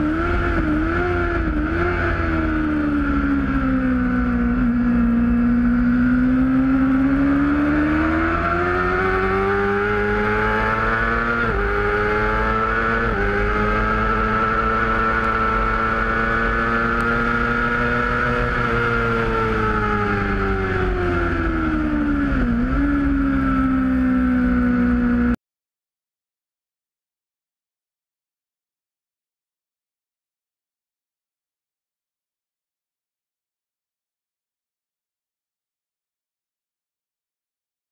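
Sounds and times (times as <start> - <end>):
motorcycle engine revving: 0.0 - 25.4.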